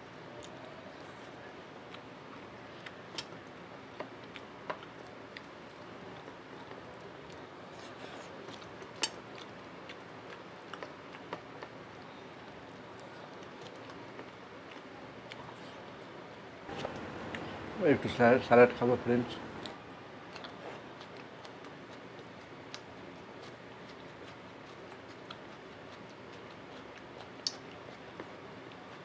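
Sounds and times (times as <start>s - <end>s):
steady low hiss: 16.4s - 21.0s
person chewing: 19.4s - 29.0s.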